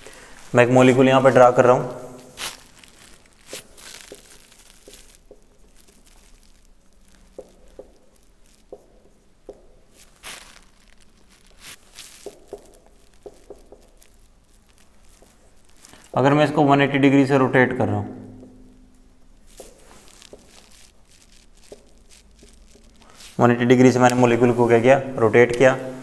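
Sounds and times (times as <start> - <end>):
marker scratching on whiteboard: 4.8 - 6.0, 7.3 - 9.9, 11.7 - 15.6, 21.6 - 23.4.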